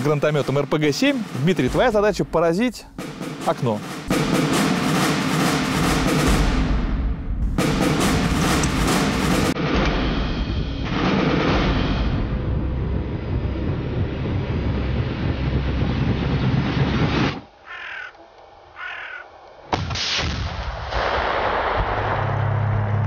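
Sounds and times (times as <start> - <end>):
sharp bang: 0.0 - 12.8
heavy grenade explosion: 5.6 - 13.2, 19.8 - 22.9
crow cawing: 17.6 - 19.4.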